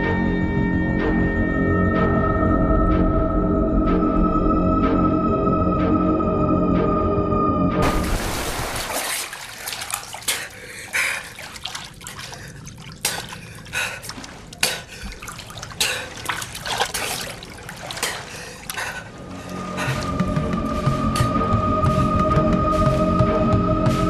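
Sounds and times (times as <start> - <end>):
organ music: 0.0 - 8.2
water splashing and trickling: 7.8 - 24.0.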